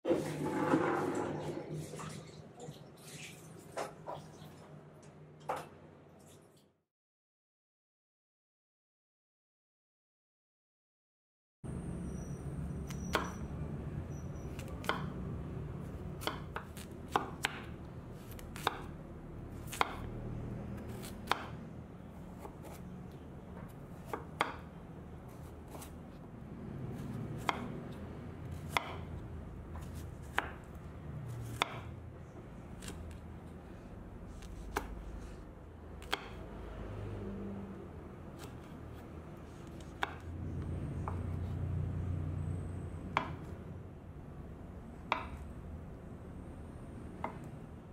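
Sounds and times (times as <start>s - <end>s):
knife chopping on wooden board: 14.6s - 15.2s, 16.1s - 19.0s, 19.6s - 20.1s, 20.8s - 21.6s, 22.4s - 22.8s, 23.6s - 24.7s, 25.3s - 26.0s, 27.0s - 27.9s, 28.5s - 30.8s, 31.4s - 31.9s, 34.3s - 35.4s, 36.0s - 36.4s, 39.6s - 40.3s, 43.1s - 43.6s, 45.1s - 45.4s.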